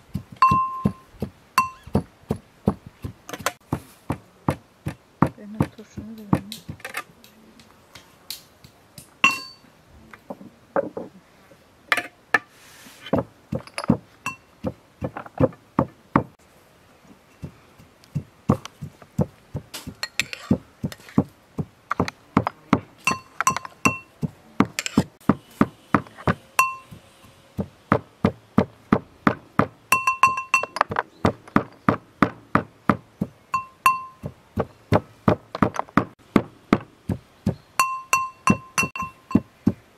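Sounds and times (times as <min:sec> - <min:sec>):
pestle pounding in a mortar: 0:00.0 - 0:06.8, 0:13.2 - 0:16.4, 0:17.4 - 0:27.0, 0:27.6 - 0:39.9
ringing clinks: 0:00.4 - 0:01.9, 0:09.2 - 0:09.6, 0:13.6 - 0:14.5, 0:23.0 - 0:24.1, 0:26.6 - 0:27.0, 0:29.9 - 0:30.9, 0:33.5 - 0:34.3, 0:37.8 - 0:39.5.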